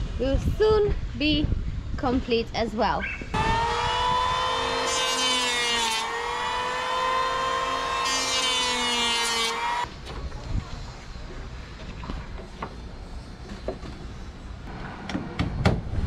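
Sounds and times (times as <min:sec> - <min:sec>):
electric hand planer whining: 0:03.4 - 0:09.9.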